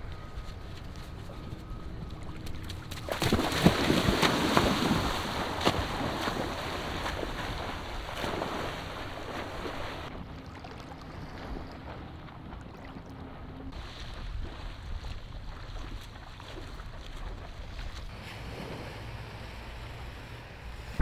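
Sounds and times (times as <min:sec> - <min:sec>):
people splashing in water: 0:02.2 - 0:13.2, 0:13.8 - 0:18.9.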